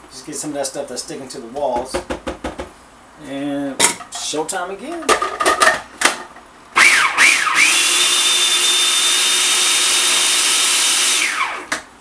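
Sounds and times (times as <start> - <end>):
food processor motor whining: 6.8 - 11.9.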